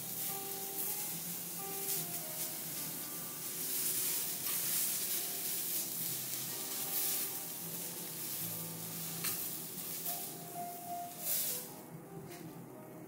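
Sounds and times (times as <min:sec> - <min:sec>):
vegetables sizzling on griddle: 0:00.0 - 0:11.8
knife and spatula scraping: 0:03.6 - 0:11.7.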